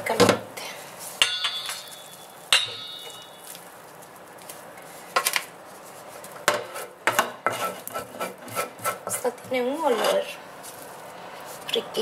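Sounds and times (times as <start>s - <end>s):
metal pan clank: 1.2s - 3.4s
wooden spoon scraping pan: 5.8s - 12.0s.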